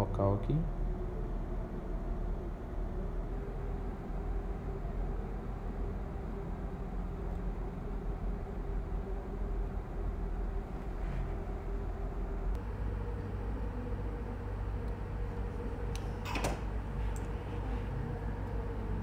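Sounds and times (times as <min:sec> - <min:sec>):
low machine hum: 0:00.0 - 0:19.0.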